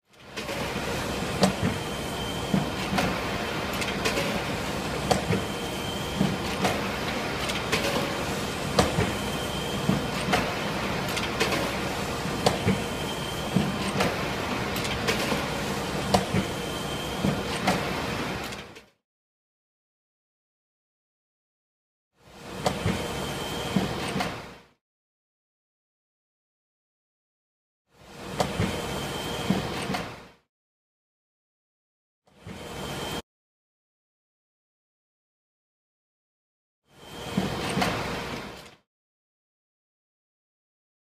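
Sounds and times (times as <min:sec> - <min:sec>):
printing press running: 0:00.2 - 0:18.8, 0:22.4 - 0:24.6.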